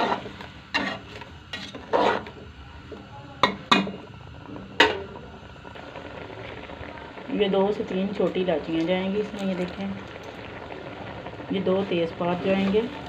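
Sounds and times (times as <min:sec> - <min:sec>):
spoon scraping a metal pot: 0:00.0 - 0:02.4.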